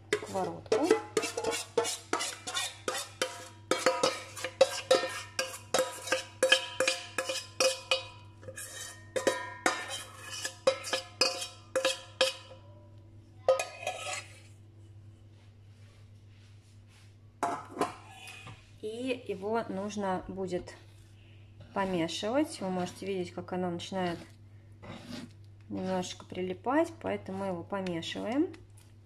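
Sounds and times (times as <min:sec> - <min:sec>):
metal spoon striking steel bowl: 0:00.1 - 0:08.2, 0:09.1 - 0:12.6, 0:13.5 - 0:14.2.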